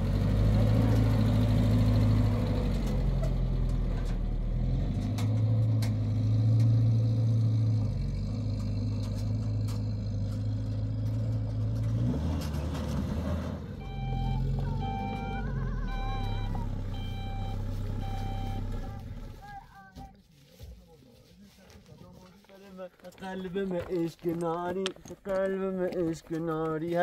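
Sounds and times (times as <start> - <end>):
pickup truck engine driving off: 0.0 - 19.6
short high beeps: 13.8 - 18.9.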